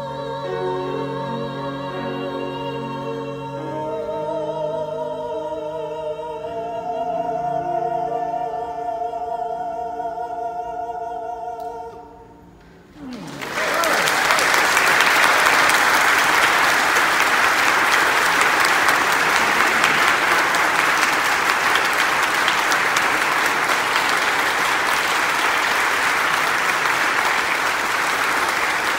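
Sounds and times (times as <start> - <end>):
crowd clapping: 13.0 - 28.9.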